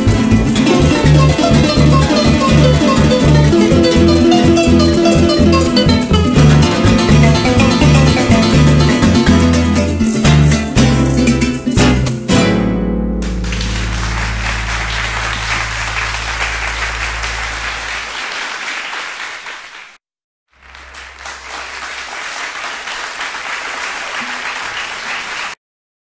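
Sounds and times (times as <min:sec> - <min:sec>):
audience applauding: 0:04.9 - 0:09.4, 0:13.2 - 0:20.0, 0:20.6 - 0:25.6
low steady hum: 0:13.2 - 0:18.1.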